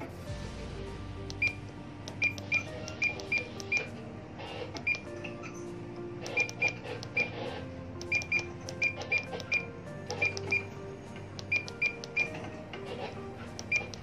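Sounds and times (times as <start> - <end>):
short high key beeps: 8.0 - 9.6.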